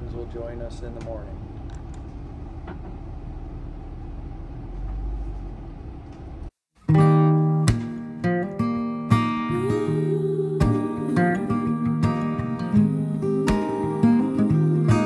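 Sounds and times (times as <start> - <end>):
van engine rumble and road noise: 0.0 - 6.6
strummed acoustic guitar music: 6.8 - 15.0.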